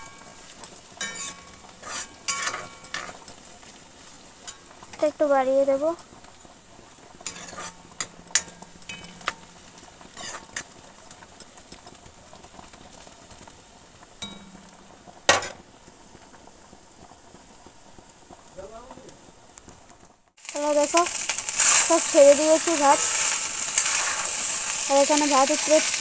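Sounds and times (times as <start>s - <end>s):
hot oil sizzling: 0.0s - 26.0s
metal spatula scraping pan: 1.0s - 3.2s, 7.2s - 10.7s, 21.1s - 26.0s.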